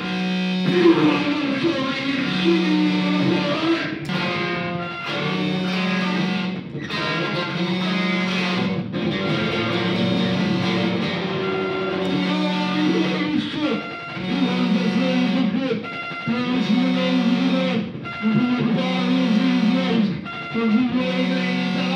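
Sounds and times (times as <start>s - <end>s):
electric guitar noise playing: 0.0s - 21.9s.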